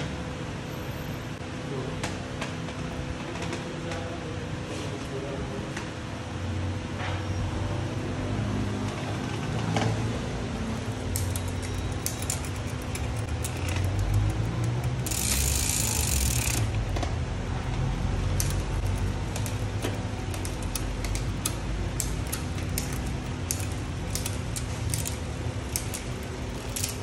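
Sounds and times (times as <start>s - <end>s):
bicycle chain running: 10.4s - 27.0s
drivetrain clicks: 10.7s - 27.0s.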